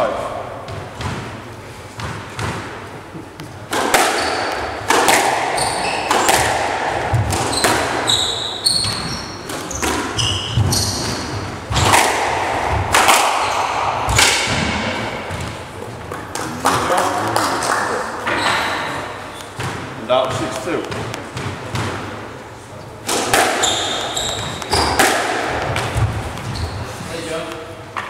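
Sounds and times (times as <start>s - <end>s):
squash ball cracking off rackets: 2.0s - 17.8s, 23.0s - 26.6s
shoes squeaking on wooden floor: 3.3s - 12.0s, 23.5s - 27.3s.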